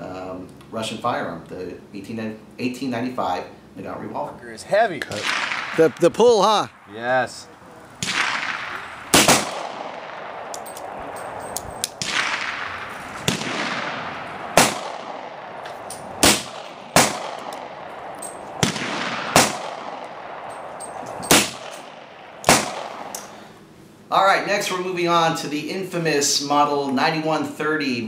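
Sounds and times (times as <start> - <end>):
fainter distant gunshots: 5.0 - 6.9, 7.9 - 23.1
revolver gunshots echoing: 5.1 - 6.9, 8.0 - 23.2.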